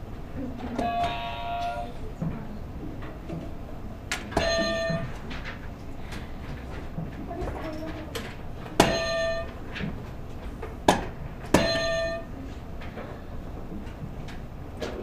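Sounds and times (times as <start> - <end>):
electronic buzzer buzzing: 0.8 - 1.9, 4.4 - 5.1, 8.9 - 9.5, 11.6 - 12.4.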